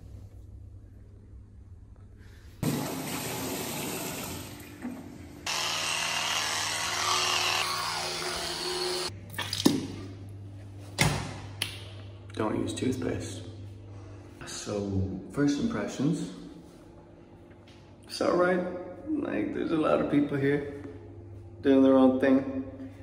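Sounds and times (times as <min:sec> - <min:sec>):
water running from tap into sink: 0:02.6 - 0:05.0
electric toothbrush buzzing: 0:05.4 - 0:09.1.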